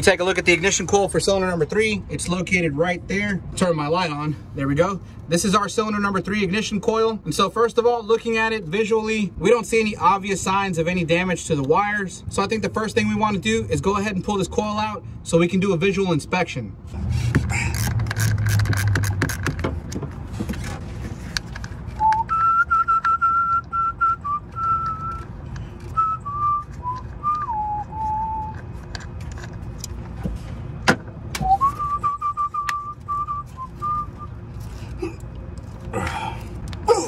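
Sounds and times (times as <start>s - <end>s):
ratchet clicking: 17.7s - 19.6s
man whistling: 22.0s - 25.3s, 25.9s - 28.6s, 31.4s - 34.4s.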